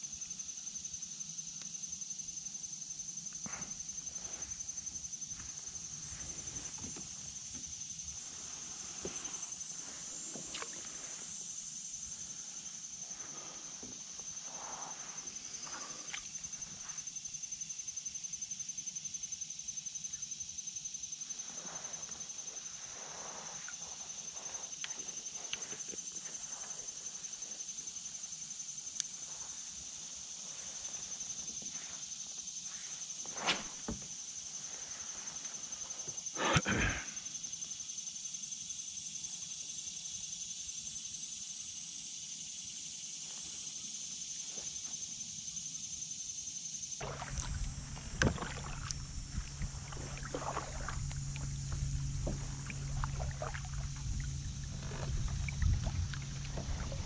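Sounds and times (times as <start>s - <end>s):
insects droning: 0.0s - 57.0s
paddling: 33.3s - 34.2s, 47.0s - 57.0s
knocks on kayak: 33.5s - 34.1s
wind on microphone: 47.0s - 57.0s.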